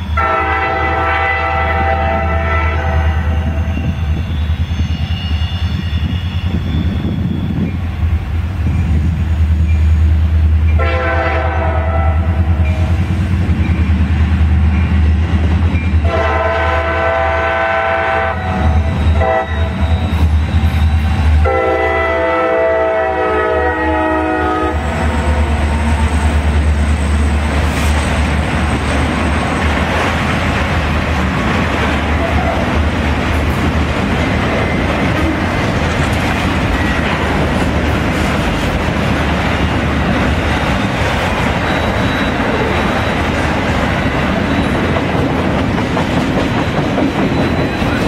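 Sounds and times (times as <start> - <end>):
diesel locomotive rumble: 0.0 - 48.0
locomotive horn blasts: 0.1 - 3.9, 10.8 - 12.9, 16.0 - 20.2, 21.4 - 25.8
freight cars rumbling and clattering: 24.8 - 48.0.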